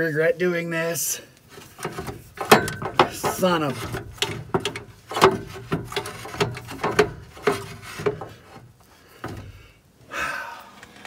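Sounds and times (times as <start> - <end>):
metal clunks and scrapes: 1.5 - 9.7.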